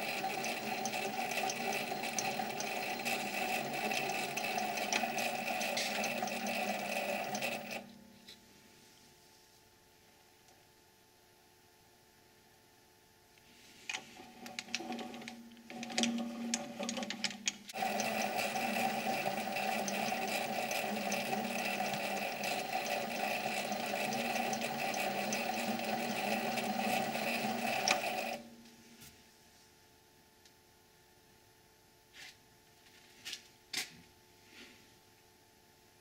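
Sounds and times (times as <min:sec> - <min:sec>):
lathe clicks: 0:00.0 - 0:07.8, 0:14.4 - 0:28.4
lathe motor whining: 0:00.0 - 0:07.9, 0:17.7 - 0:28.4.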